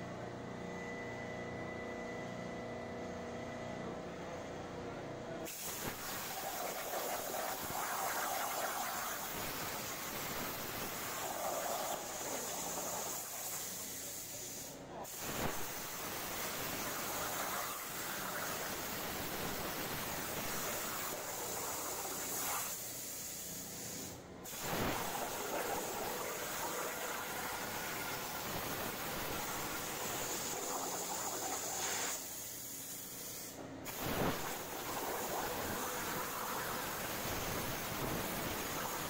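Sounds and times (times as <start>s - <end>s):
plasma cutter hissing: 5.5s - 39.0s.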